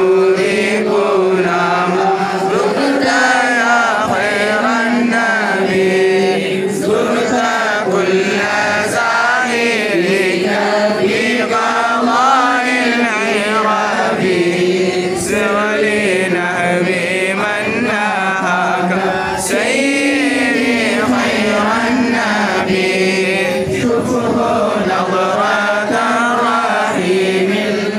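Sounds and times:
group chanting in unison: 0.0s - 27.9s.

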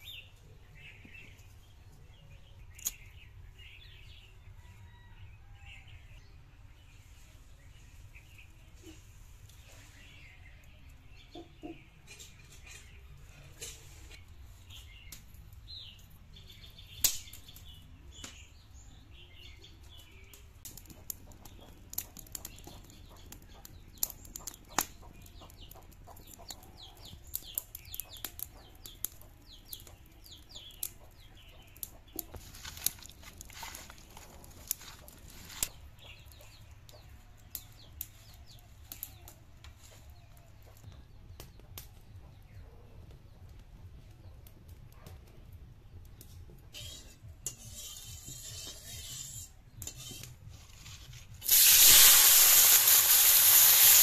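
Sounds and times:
stick fire crackling: 2.4s - 4.0s, 12.1s - 18.6s, 19.3s - 42.1s, 43.4s - 54.0s
dry sticks snapping: 2.7s - 3.0s, 17.0s - 17.7s.

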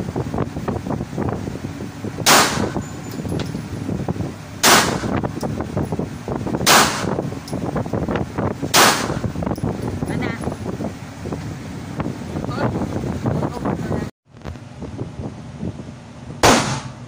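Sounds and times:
handgun shots: 2.3s - 2.8s, 4.6s - 5.2s, 6.7s - 7.2s, 8.7s - 9.2s, 16.4s - 17.0s.

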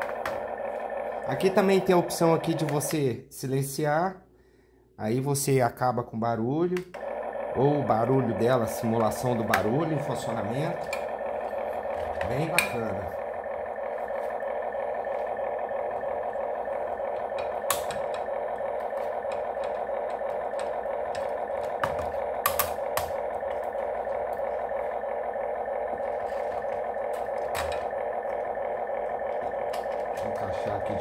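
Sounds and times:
simulated engine drone from toy speaker: 0.0s - 3.1s, 6.8s - 31.0s
plastic clicks and knocks: 18.9s - 23.2s, 27.1s - 27.8s.

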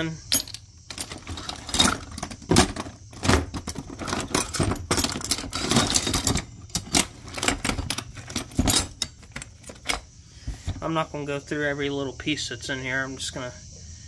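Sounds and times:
metal tools clinking: 0.0s - 10.1s.

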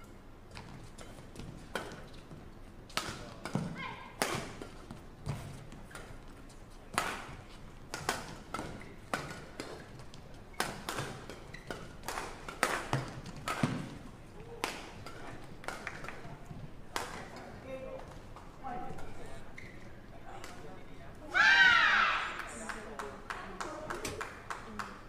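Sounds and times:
rackets hitting shuttlecock: 2.9s - 6.2s, 6.9s - 18.2s.

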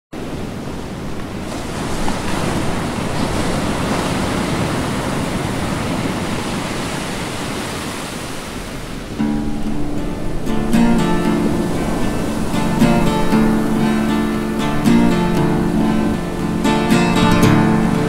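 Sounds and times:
ocean waves washing in: 0.2s - 18.0s.

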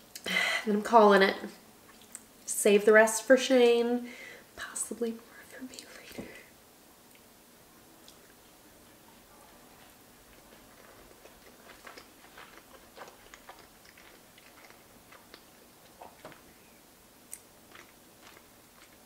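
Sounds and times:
chewing with mouth clicks: 9.5s - 16.6s, 17.3s - 19.0s.

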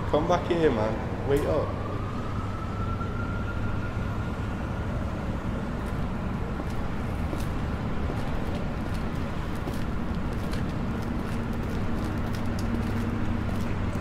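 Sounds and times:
distant city traffic rumble: 0.0s - 14.0s
footsteps clicking on pavement: 5.8s - 14.0s.

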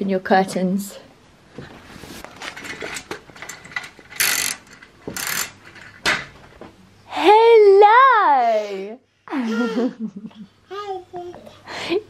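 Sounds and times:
curtain swishing: 1.8s - 3.0s
curtain rings clicking and rattling: 2.3s - 6.6s.

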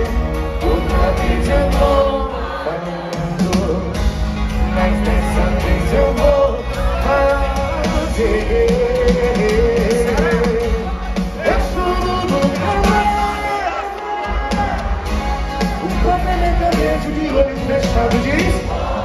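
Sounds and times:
person singing: 0.0s - 14.8s
drums: 0.0s - 19.0s
guitars: 0.0s - 19.0s.

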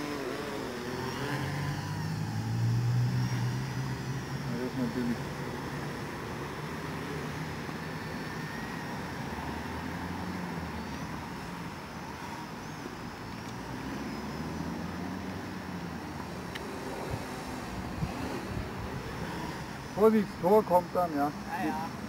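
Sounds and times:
drone propellers whirring: 0.0s - 22.0s.

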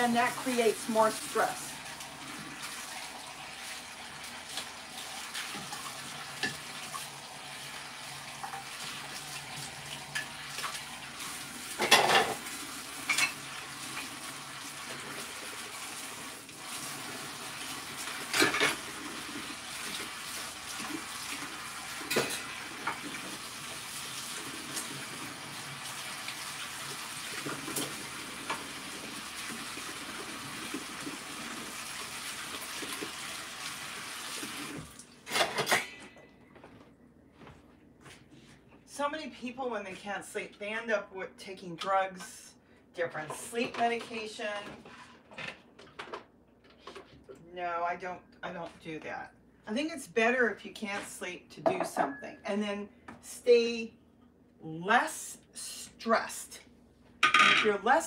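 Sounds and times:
faucet running into a sink: 0.2s - 35.3s
dishware clinking: 51.6s - 52.4s.

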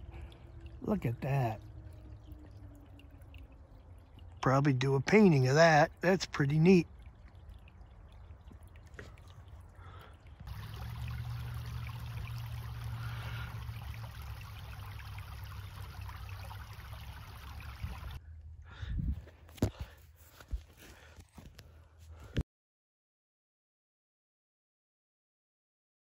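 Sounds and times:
water trickling over stones: 0.0s - 18.2s.

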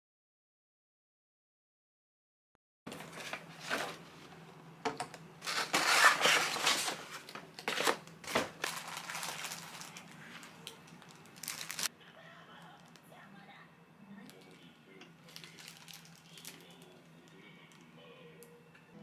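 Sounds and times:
paper bag rustling: 2.9s - 4.3s, 5.4s - 11.9s, 15.3s - 17.0s.

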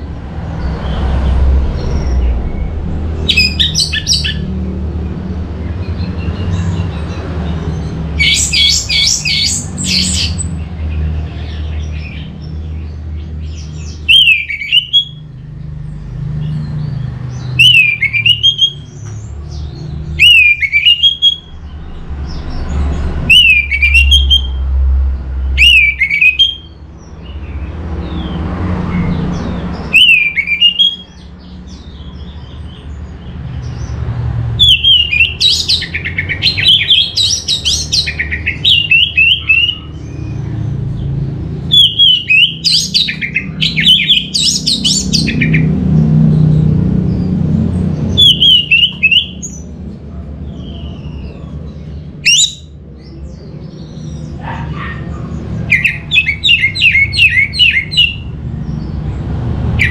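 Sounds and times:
thrush singing whistled phrases: 17.6s - 18.9s, 20.2s - 21.6s, 23.3s - 24.6s, 25.6s - 26.8s, 29.9s - 31.1s, 41.7s - 45.6s.

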